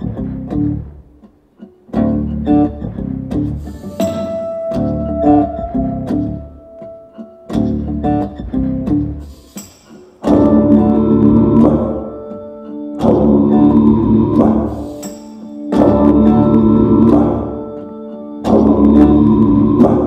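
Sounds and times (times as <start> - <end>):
song over loudspeakers: 10.2 - 20.0.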